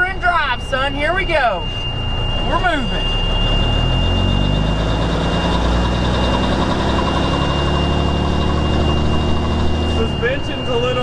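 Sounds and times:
high-pitched whine: 0:00.0 - 0:11.0
truck engine from inside cab: 0:00.0 - 0:11.0.

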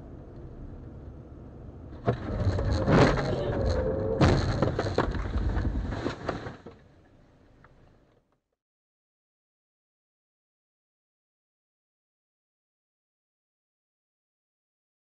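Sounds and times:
car collision bang: 0:02.0 - 0:06.7
crunching and heavy knocks: 0:02.0 - 0:06.8.

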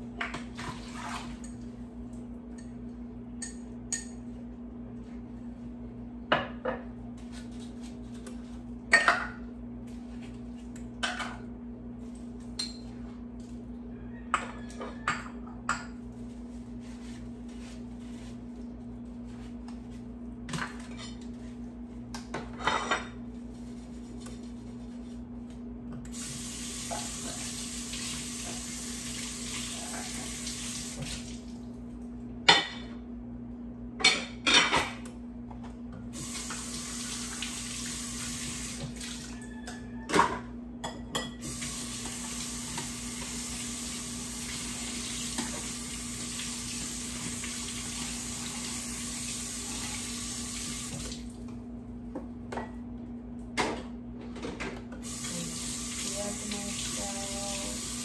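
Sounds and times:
faucet running into sink: 0:41.4 - 0:51.3, 0:55.0 - 0:58.0.

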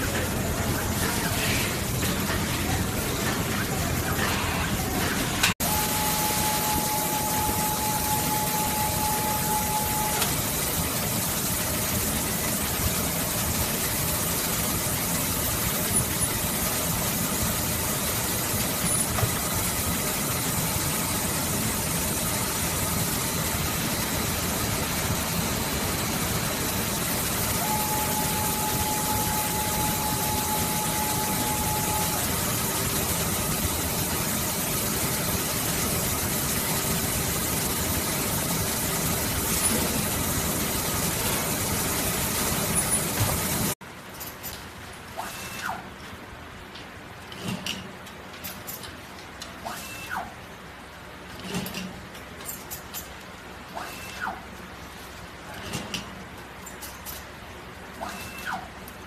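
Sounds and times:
wire coiling machine whine: 0:00.0 - 0:43.8
factory machinery hum: 0:00.0 - 0:59.0.

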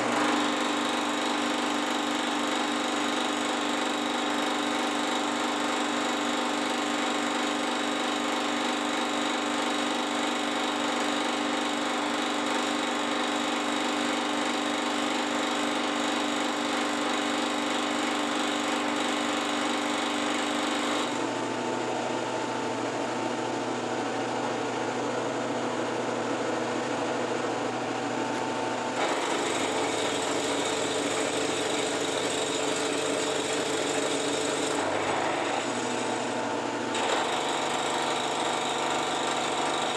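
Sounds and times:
metal cutting noise: 0:00.0 - 0:06.0, 0:28.9 - 0:39.9
milling machine hum: 0:00.0 - 0:06.1, 0:15.8 - 0:39.9.

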